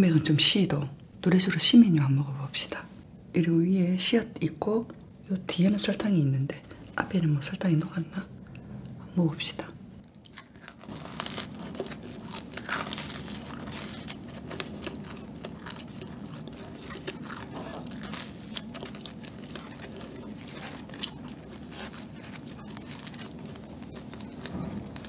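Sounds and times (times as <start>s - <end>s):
chewing crunchy bread bun: 10.0s - 25.0s.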